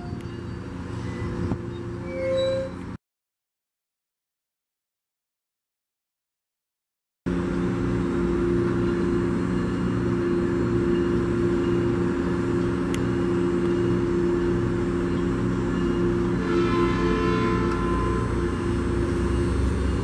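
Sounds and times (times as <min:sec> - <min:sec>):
train idling hum: 0:00.0 - 0:02.1, 0:07.3 - 0:20.0.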